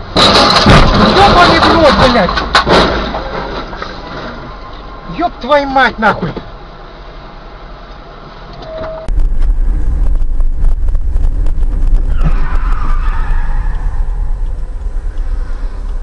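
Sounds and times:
road and wind rumble: 0:00.0 - 0:16.0
tyres skidding: 0:00.0 - 0:16.0
car engine hum: 0:05.5 - 0:16.0.

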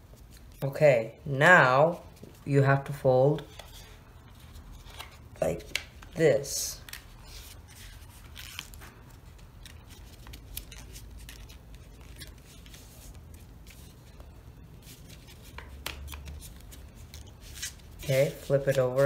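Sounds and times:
paper being folded and creased: 0:06.8 - 0:19.0.

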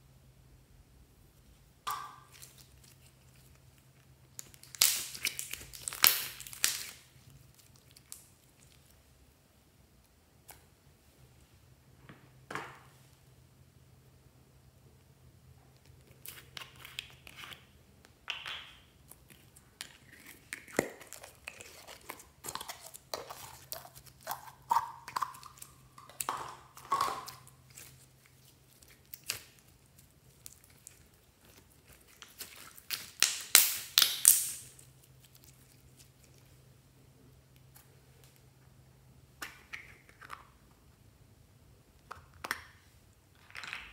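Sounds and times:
slime clicking and crackling: 0:02.0 - 0:08.9, 0:20.2 - 0:36.4.

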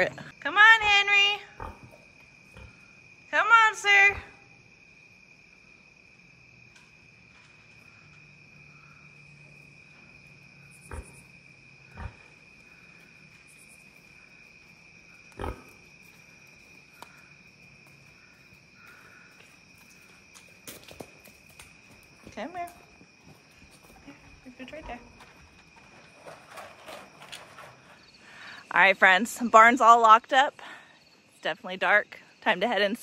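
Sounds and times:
crickets trilling: 0:00.0 - 0:33.0.

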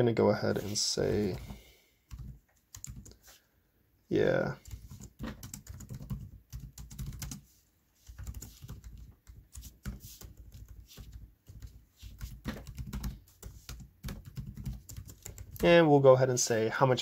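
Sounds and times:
typing on computer keyboard: 0:02.1 - 0:03.2, 0:04.6 - 0:07.4, 0:08.1 - 0:15.7.

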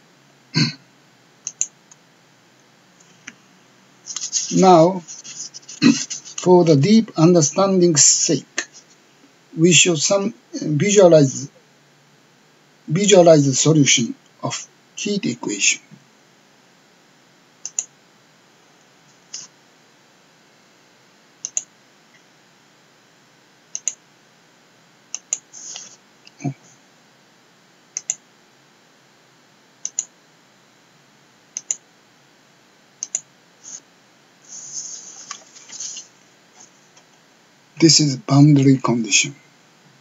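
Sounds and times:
computer mouse clicks: 0:01.4 - 0:02.0, 0:17.6 - 0:17.9, 0:21.4 - 0:21.7, 0:23.7 - 0:24.0, 0:25.1 - 0:25.9, 0:27.9 - 0:28.2, 0:29.8 - 0:30.1, 0:31.5 - 0:31.8, 0:33.0 - 0:33.3.

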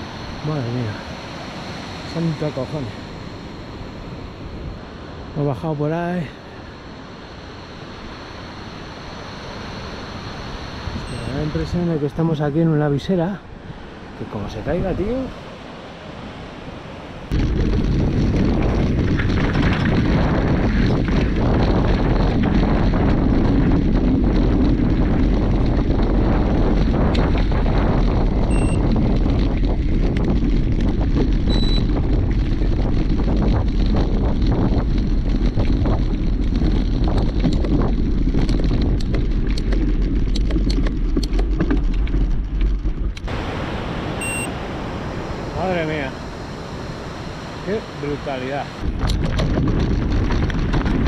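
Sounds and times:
wind rumble on microphone: 0:00.0 - 0:51.0
bike knocking and rattling: 0:17.3 - 0:43.3, 0:48.8 - 0:51.0.

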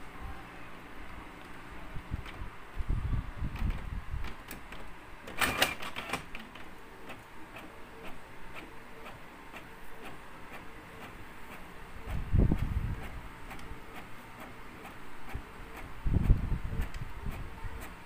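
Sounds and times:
printer clicking: 0:03.6 - 0:18.0.

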